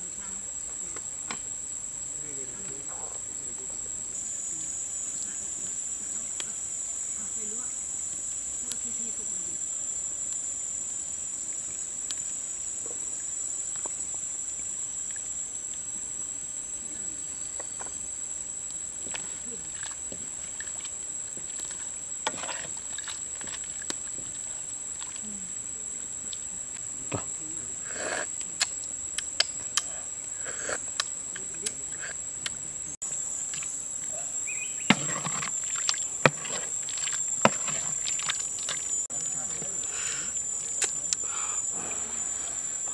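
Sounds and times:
high-pitched insect chirring: 0:28.2 - 0:42.9
soup simmering with soft pops: 0:34.4 - 0:39.1
stirring clicks: 0:34.9 - 0:39.6.

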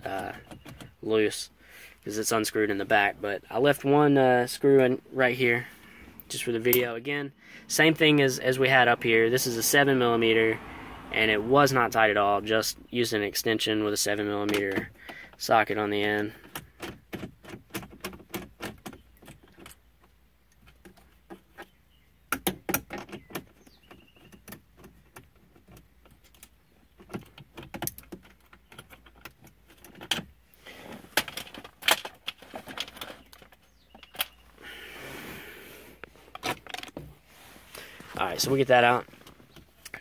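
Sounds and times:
rustling scrape: 0:37.2 - 0:39.4.

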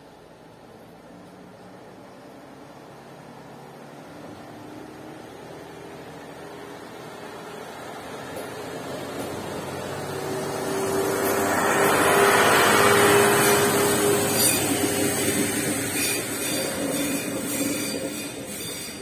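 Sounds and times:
passenger train passing: 0:00.0 - 0:19.0.

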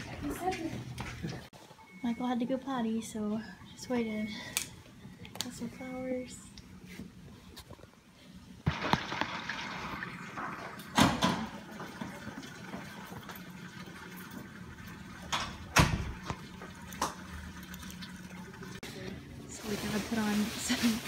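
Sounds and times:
aquarium water bubbling: 0:08.7 - 0:18.8.

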